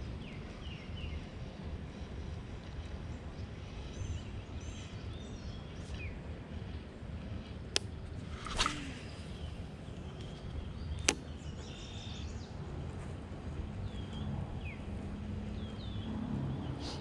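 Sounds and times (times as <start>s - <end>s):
wind rumbling on microphone: 0.0s - 17.0s
fishing rod swish: 8.2s - 9.6s.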